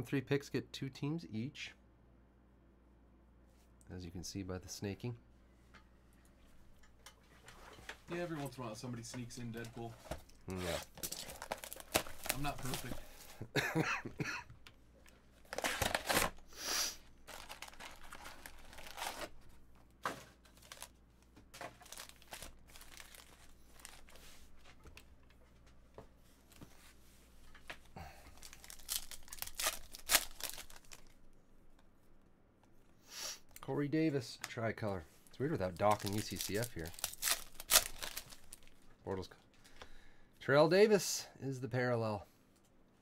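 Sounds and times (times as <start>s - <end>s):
plastic and foil packs crinkling: 9.3s - 13.5s, 15.0s - 19.6s, 20.2s - 21.0s, 21.6s - 25.0s, 28.0s - 31.2s, 35.4s - 38.9s.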